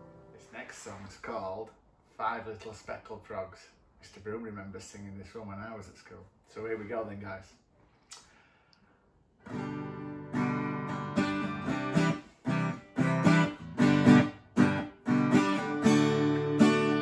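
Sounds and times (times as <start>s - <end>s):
acoustic guitar strumming chords: 9.5s - 17.0s.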